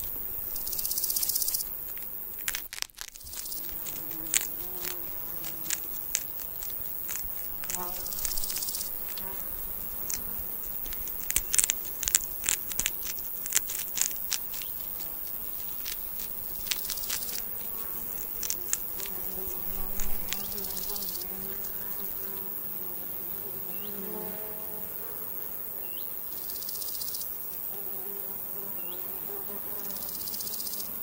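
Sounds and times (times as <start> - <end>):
buzzing insect: 0.0 - 31.0
hedgehogs crunching food: 1.2 - 21.3.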